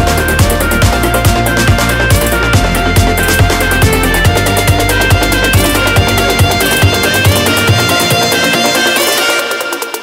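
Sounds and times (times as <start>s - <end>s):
electronic music: 0.0s - 10.0s.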